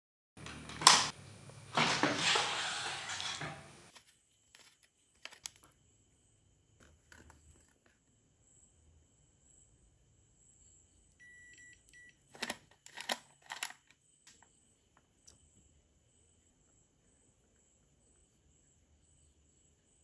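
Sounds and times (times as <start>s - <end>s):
faint high beeps: 11.2s - 12.2s.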